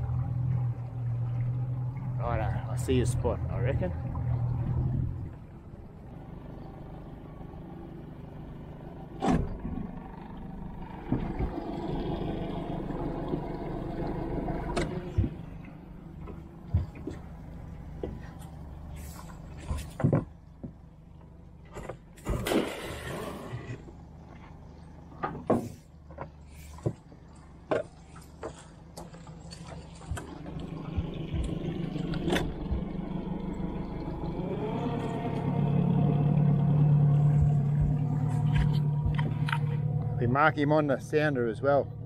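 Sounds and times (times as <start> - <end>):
boat motor running: 0.0 - 42.0
splash into water: 22.2 - 23.7.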